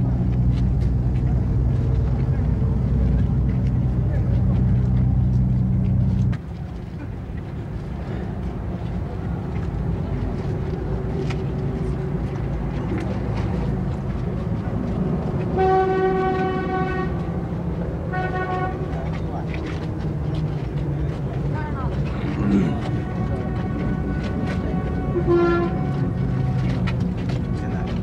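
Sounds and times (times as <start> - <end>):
heavy engine drone: 0.0 - 28.0
street traffic rumble: 0.0 - 28.0
vehicle horn: 15.5 - 17.2, 18.1 - 19.0, 22.9 - 26.8.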